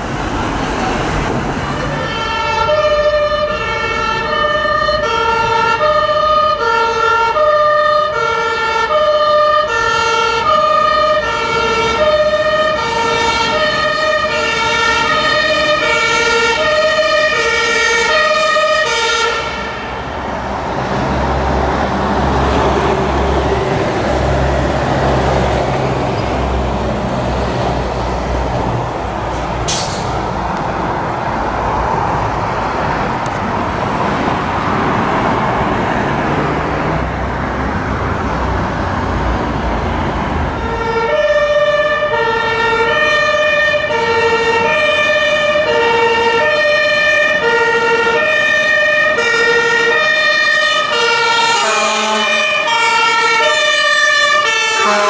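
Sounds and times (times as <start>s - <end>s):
fire engine two-tone siren: 0.0s - 20.5s, 38.4s - 55.0s
heavy truck engine: 0.0s - 55.0s
traffic rumble: 0.0s - 55.0s.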